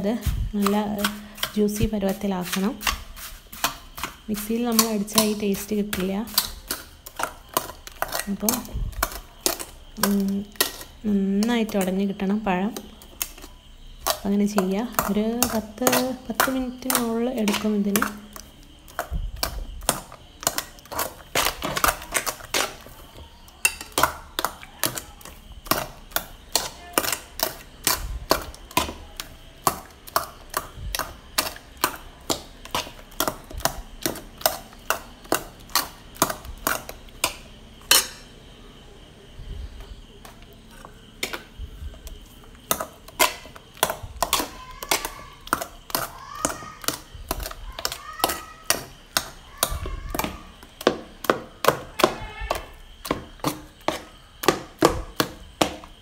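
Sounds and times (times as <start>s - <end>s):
spoon mashing bananas: 0.0s - 56.0s
spoon knocking metal bowl: 29.6s - 38.3s.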